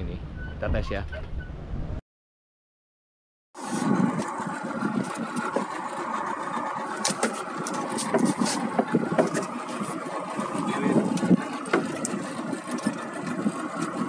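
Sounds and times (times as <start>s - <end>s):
small boat engine running: 3.6s - 14.0s
knocks and clicks: 7.0s - 9.6s.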